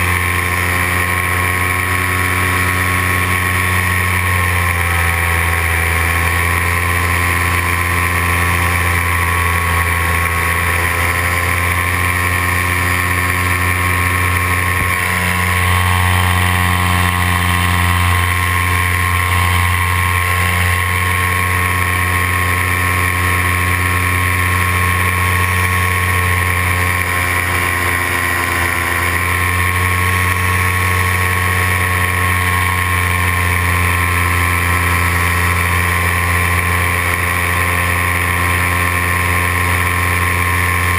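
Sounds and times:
paramotor engine and propeller: 0.0s - 40.9s.

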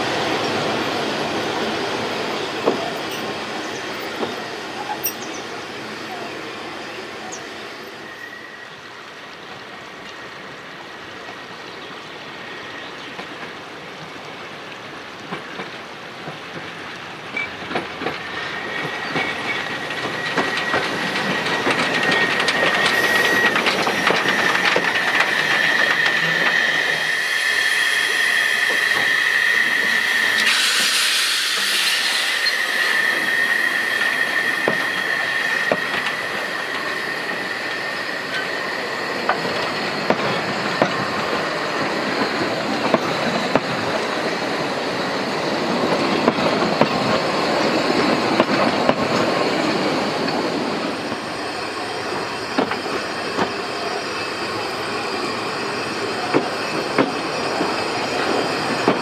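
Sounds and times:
steam hiss: 0.0s - 59.0s
steam train passing: 0.0s - 59.0s
rail joints clicking: 13.0s - 27.1s, 33.2s - 51.3s, 56.2s - 59.0s
wheels squealing: 17.3s - 59.0s.

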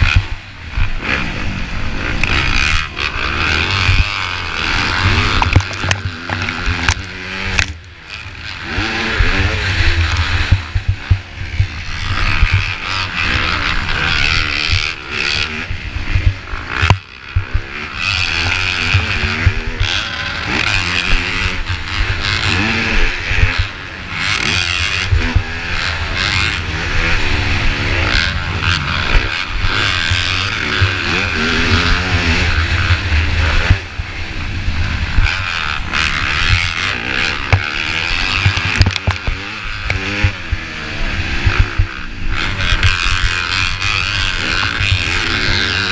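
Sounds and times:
heavy wind rumble: 0.0s - 45.9s
motocross bike engine revving: 0.0s - 45.9s
sharp knocks from ruts: 5.0s - 7.8s, 37.4s - 40.7s.

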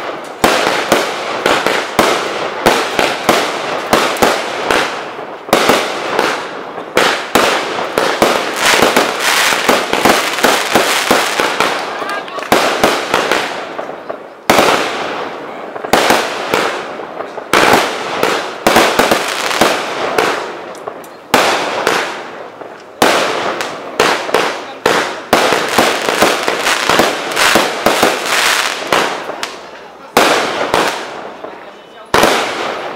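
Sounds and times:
fireworks bursting with crackles: 0.0s - 32.9s.

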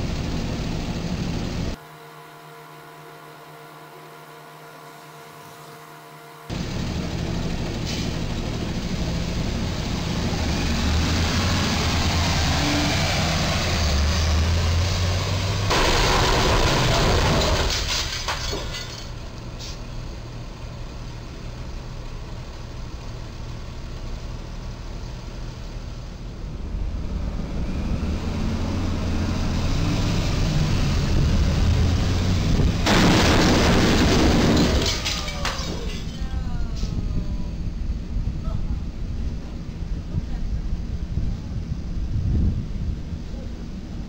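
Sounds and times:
traffic noise: 0.0s - 44.0s
truck engine rumbling: 0.0s - 44.0s
truck crashing into steel beam: 15.6s - 19.7s, 32.8s - 36.3s
falling debris knocks: 15.7s - 19.2s, 32.8s - 36.2s.

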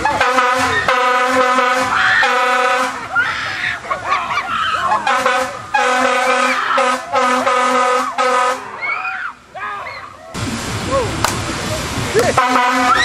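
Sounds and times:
air horn blasts: 0.0s - 3.1s, 5.0s - 8.7s, 12.4s - 13.0s
people yelling and shrieking: 1.9s - 5.2s, 6.2s - 7.2s, 8.0s - 11.1s.

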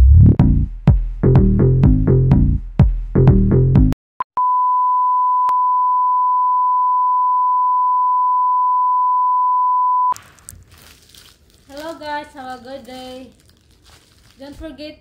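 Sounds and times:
steady test tone beep: 4.4s - 10.2s.

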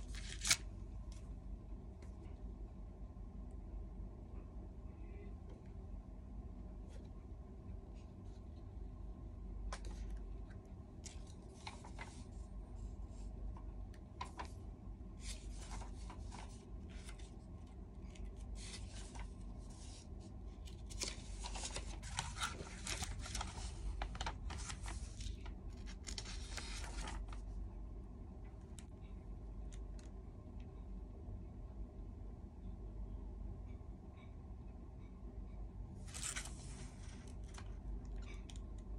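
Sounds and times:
paper rustling and crinkling: 0.0s - 0.7s, 9.7s - 12.5s, 15.2s - 27.5s, 36.0s - 38.4s.

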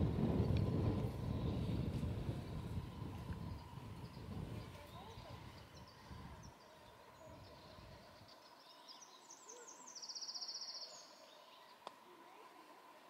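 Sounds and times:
songbird trilling: 8.6s - 11.7s.

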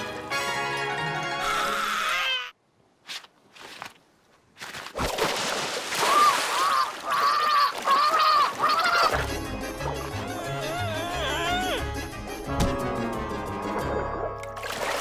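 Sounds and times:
background music: 0.0s - 2.2s, 8.8s - 15.0s
cartoon character crying out: 1.4s - 2.6s, 6.1s - 9.2s, 10.1s - 11.9s.

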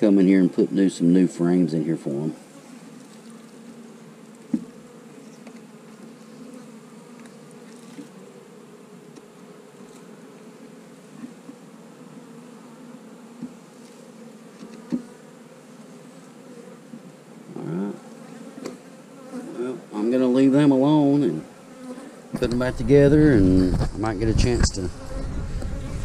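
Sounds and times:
honeybees buzzing: 0.0s - 26.0s
wooden knocks of hive frames: 4.4s - 6.2s, 13.3s - 13.7s, 14.5s - 15.2s.

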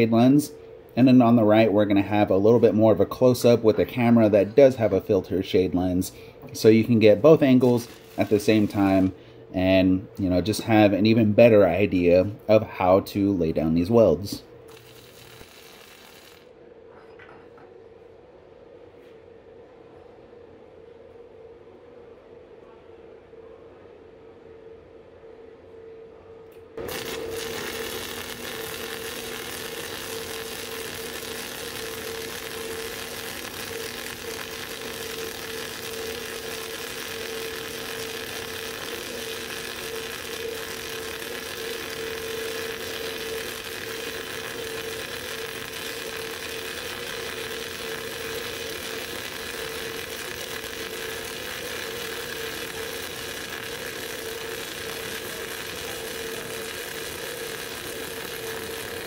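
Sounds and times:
welding arc crackling and spattering: 0.0s - 0.5s, 6.0s - 9.2s, 14.3s - 16.5s, 26.8s - 59.0s
steady hum: 0.0s - 59.0s.

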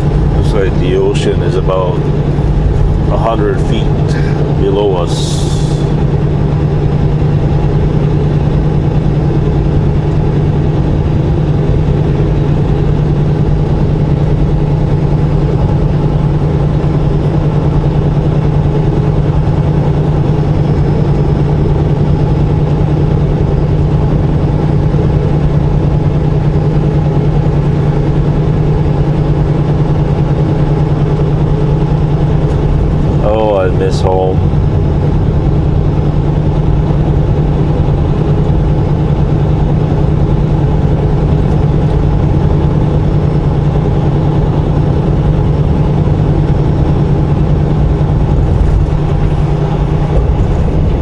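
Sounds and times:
road noise: 0.0s - 6.0s, 48.2s - 51.0s
truck diesel engine humming: 0.0s - 51.0s.

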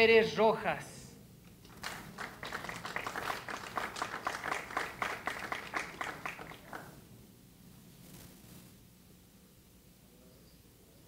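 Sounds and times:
audience applause: 1.6s - 7.0s.

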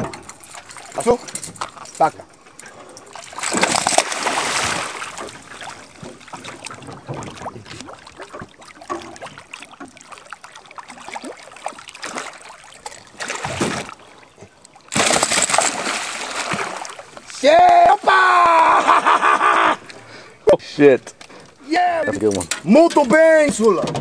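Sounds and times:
fish splashing in water: 3.1s - 19.0s.

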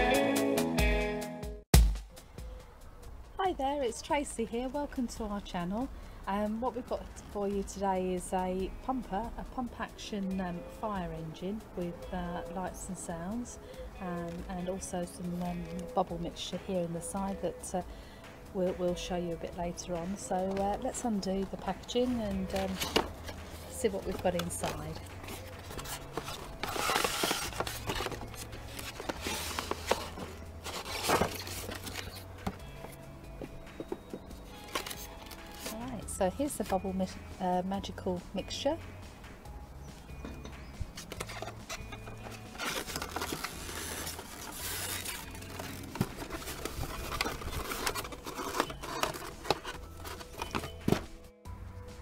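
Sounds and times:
cardboard scraping and rustling: 20.3s - 35.9s, 40.9s - 51.1s.

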